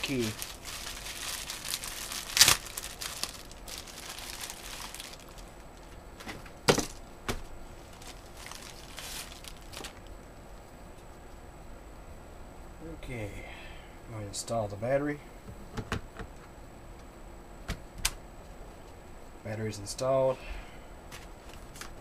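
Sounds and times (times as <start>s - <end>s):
plastic packaging crinkling: 0.0s - 6.0s, 7.8s - 10.1s
items knocking down: 6.2s - 7.4s.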